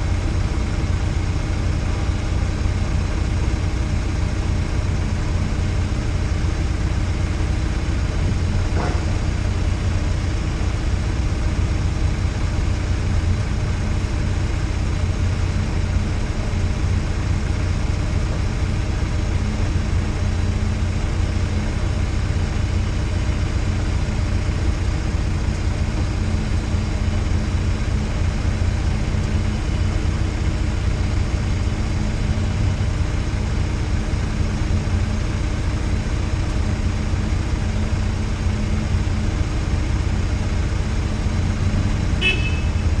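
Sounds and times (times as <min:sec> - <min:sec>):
car engine idling: 0:00.0 - 0:43.0.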